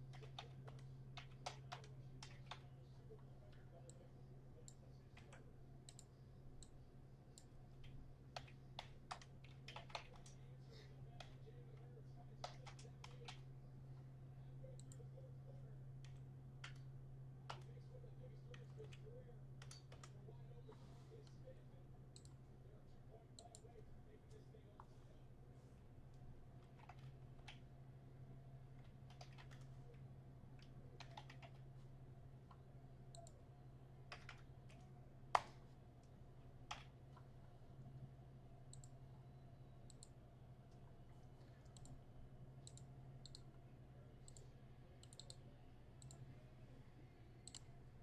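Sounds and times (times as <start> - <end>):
keyboard and mouse clicking: 0.0 - 2.8, 4.6 - 6.8, 7.4 - 10.5, 11.1 - 13.5, 14.7 - 15.1, 16.0 - 20.2, 26.6 - 27.7, 28.7 - 31.7, 32.4 - 33.4, 34.1 - 37.3, 38.7 - 39.0, 39.8 - 40.2, 41.5 - 42.0, 42.6 - 43.5, 44.2 - 45.4, 46.0 - 46.2, 47.4 - 47.7
steady low hum: 0.0 - 48.0.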